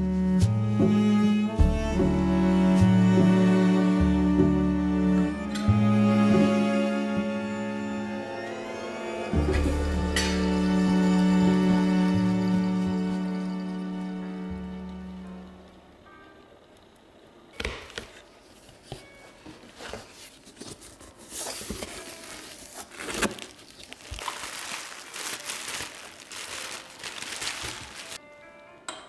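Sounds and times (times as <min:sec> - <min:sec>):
plastic packing crinkling and rustling: 0:18.1 - 0:28.2.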